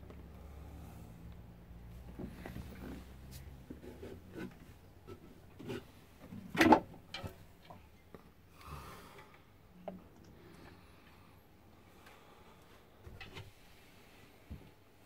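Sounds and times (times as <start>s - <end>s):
knocks rubs and creaks in boat cabin: 2.0s - 6.7s.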